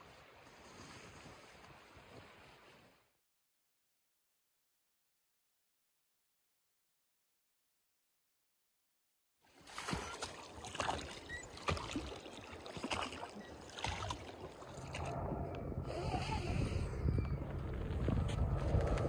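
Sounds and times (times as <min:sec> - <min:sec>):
water lapping against raft: 0:09.5 - 0:16.6
small plane engine drone: 0:14.2 - 0:19.0.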